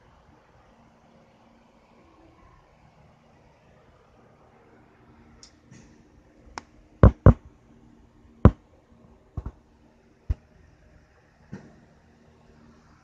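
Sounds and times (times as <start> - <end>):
faint steady hum: 0.0 - 13.0
sharp knocks and taps: 7.0 - 7.4, 9.4 - 9.6.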